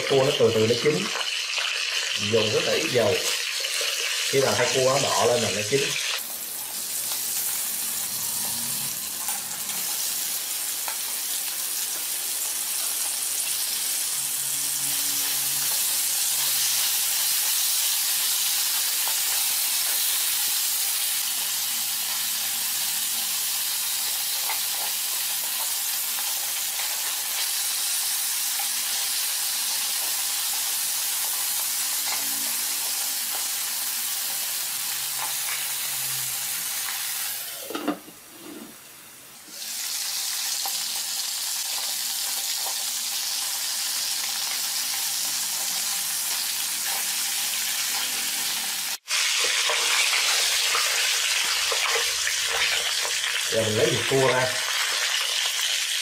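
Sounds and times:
crab pieces sizzling in oil: 0:00.0 - 0:56.0.

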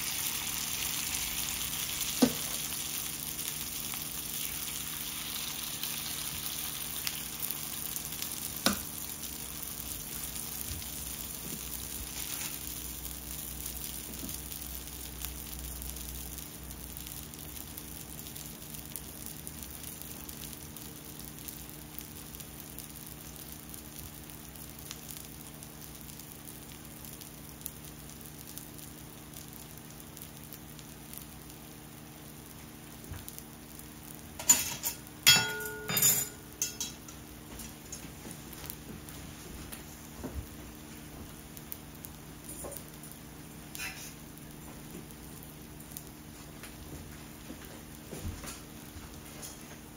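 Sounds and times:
oil sizzling in pan: 0:00.0 - 0:49.9
sharp metal clinks: 0:34.4 - 0:37.2.

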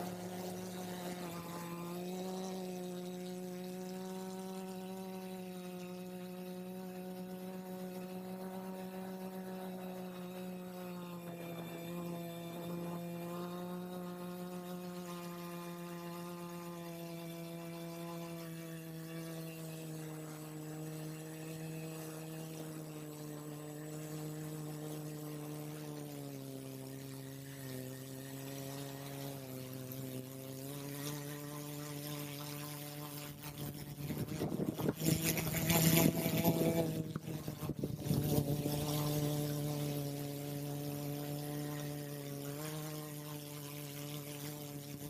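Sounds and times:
drone propellers humming: 0:15.6 - 0:32.1, 0:33.0 - 0:42.6
wind buffeting microphone: 0:34.0 - 0:38.9.

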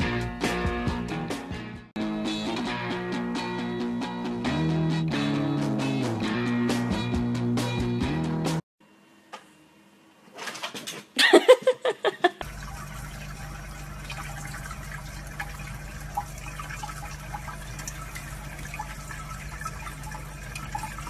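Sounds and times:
tap water running: 0:12.4 - 0:21.0.

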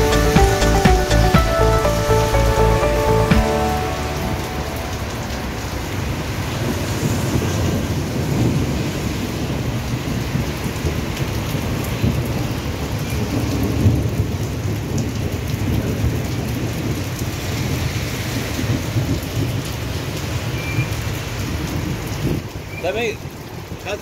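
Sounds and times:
rain falling on wet street: 0:00.0 - 0:24.0.

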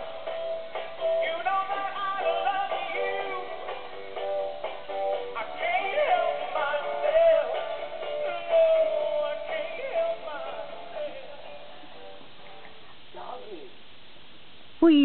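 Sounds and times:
toy singing with music: 0:01.0 - 0:11.7.

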